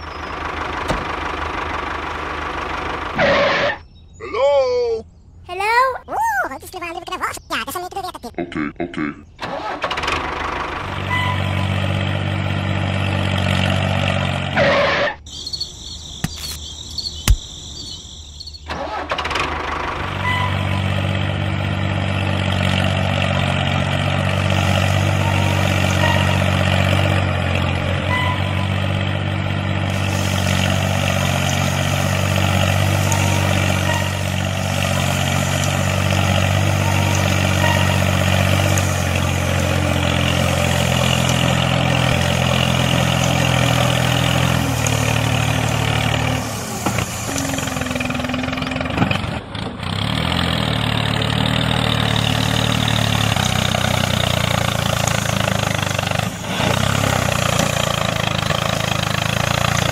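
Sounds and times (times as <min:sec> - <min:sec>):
small tractor engine running: 0:00.0 - 0:03.8, 0:09.4 - 0:15.1, 0:18.6 - 0:59.9
sharp click: 0:16.2 - 0:16.6.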